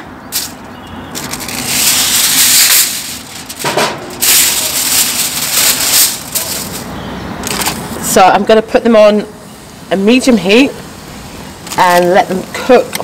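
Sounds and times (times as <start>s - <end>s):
aluminium foil crinkling: 0.4s - 7.9s, 11.6s - 13.0s.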